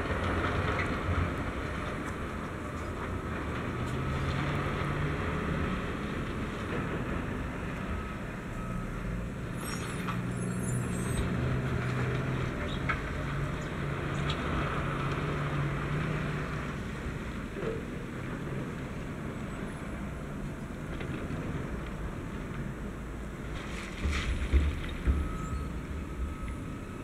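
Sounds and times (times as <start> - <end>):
truck diesel engine: 0.0 - 27.0
wheel loader engine: 0.0 - 27.0
brief high squeal: 9.6 - 11.2.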